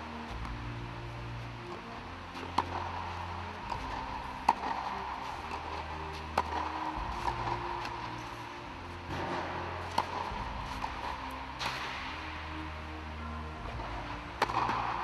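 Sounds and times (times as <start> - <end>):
faint tennis ball bounces: 1.7 - 8.3, 9.1 - 12.2, 13.6 - 15.0
tennis ball struck by racquets: 2.3 - 12.5, 13.6 - 15.0.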